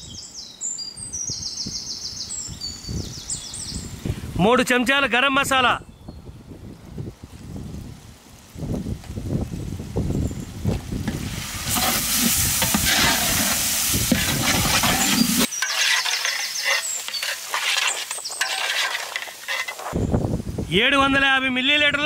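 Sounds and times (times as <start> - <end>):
oil sizzling: 11.0 - 20.0
metal ladle scraping pot: 11.6 - 20.0.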